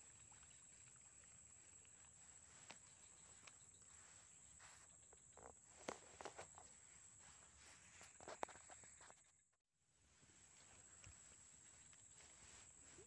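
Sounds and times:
faint clicks and rustles: 0:00.2 - 0:09.5.

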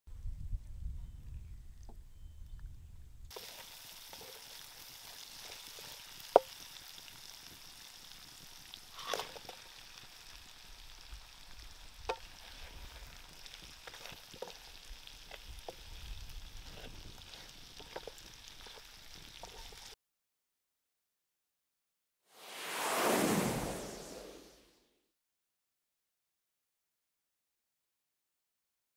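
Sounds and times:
fish sizzling in a frying pan: 0:03.3 - 0:20.0.

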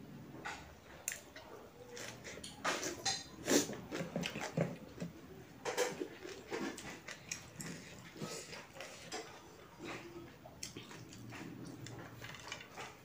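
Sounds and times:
person chewing: 0:06.0 - 0:12.7.

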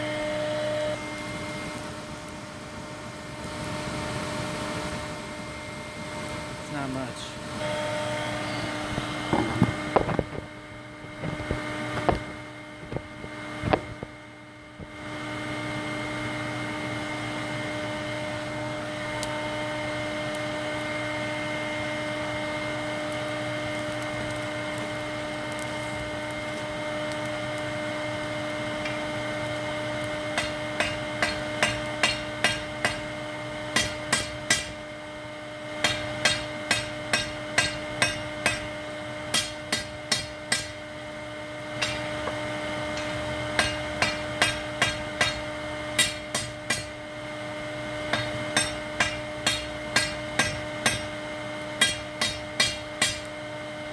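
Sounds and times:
steady machine hum: 0:00.0 - 0:53.9
hammer ringing on anvil: 0:30.4 - 0:33.0, 0:35.8 - 0:38.7, 0:39.3 - 0:40.7, 0:41.8 - 0:42.1, 0:42.9 - 0:46.9, 0:48.1 - 0:51.1, 0:51.8 - 0:53.3.

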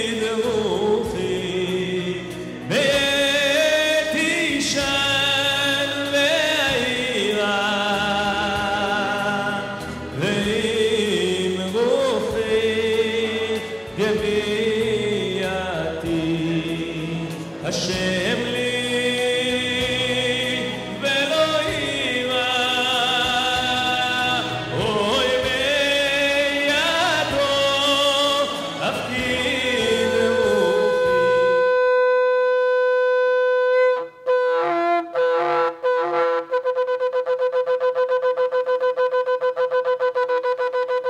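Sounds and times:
cantor singing with music: 0:00.0 - 0:36.6
shofar blasts: 0:29.8 - 0:41.0.

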